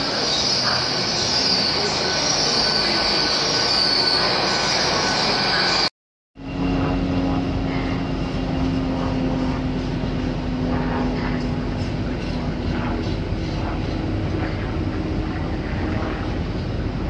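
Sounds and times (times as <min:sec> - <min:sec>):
diesel train engine drone: 0:00.0 - 0:17.0
humming tone: 0:06.4 - 0:16.7.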